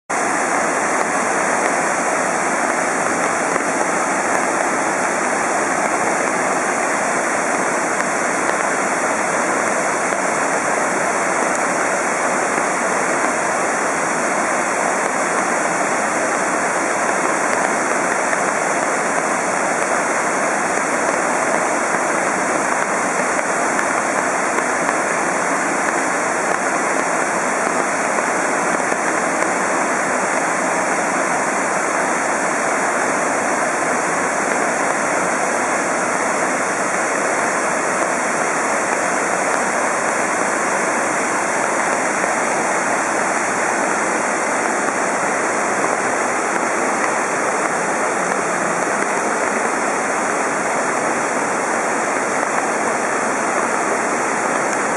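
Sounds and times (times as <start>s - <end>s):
waterfall and stream rushing: 0.1s - 54.9s.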